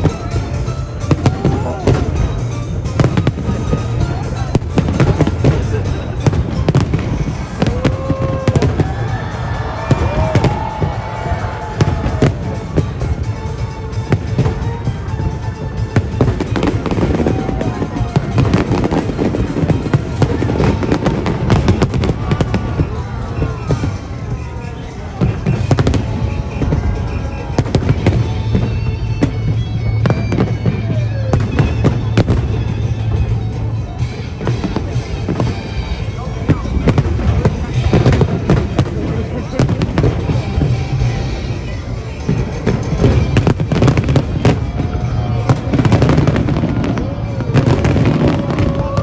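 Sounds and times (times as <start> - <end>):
fireworks bangs: 0.0 - 49.0.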